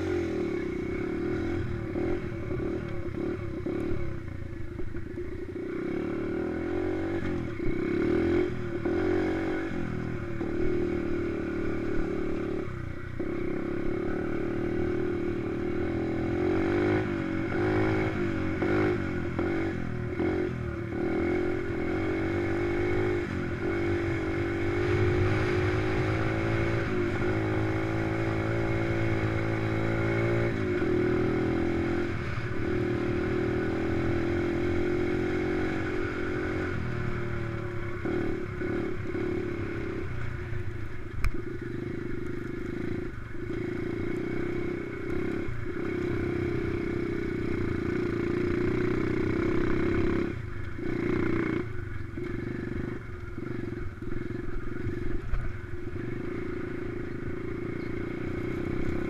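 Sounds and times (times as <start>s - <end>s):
dirt bike engine revving: 0.0s - 4.2s, 5.1s - 40.2s.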